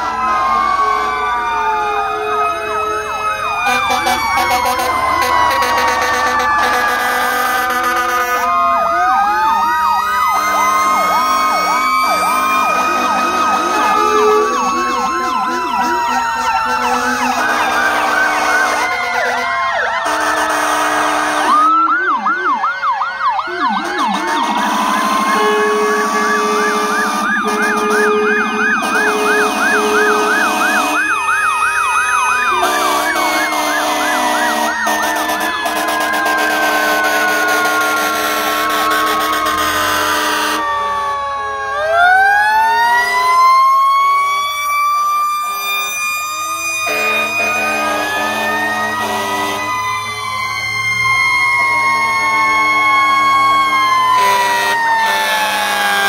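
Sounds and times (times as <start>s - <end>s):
fire engine sirens wailing: 0.0s - 56.0s
short low horn blasts: 20.0s - 21.7s, 23.8s - 31.0s, 32.5s - 40.6s, 46.9s - 49.7s.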